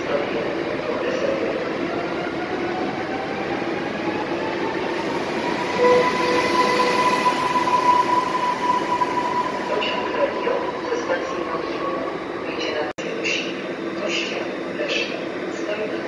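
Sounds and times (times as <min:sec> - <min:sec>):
train traction motor whine: 0:04.6 - 0:12.4.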